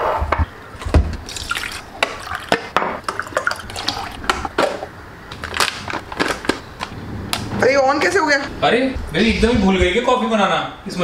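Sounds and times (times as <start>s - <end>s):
water pouring from a mug: 1.3s - 4.4s.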